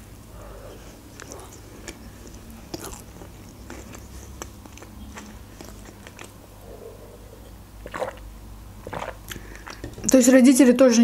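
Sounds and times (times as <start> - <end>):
chewing food: 1.0 - 6.4, 7.8 - 9.9
mouth clicks and smacks: 1.0 - 6.4, 7.8 - 10.2.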